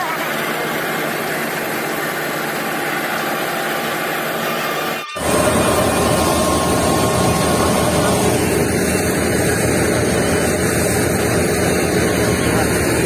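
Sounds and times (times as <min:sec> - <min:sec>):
crop thresher running: 0:00.0 - 0:13.0.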